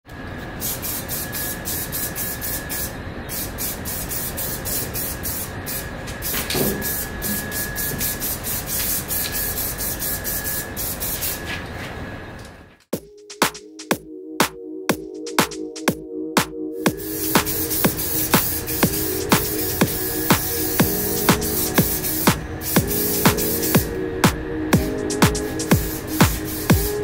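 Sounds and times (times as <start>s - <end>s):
thin steady whistle: 0.6s - 3.0s, 4.0s - 11.6s, 16.9s - 27.0s
spray can hissing in bursts: 0.6s - 11.4s, 16.9s - 23.9s, 24.8s - 27.0s.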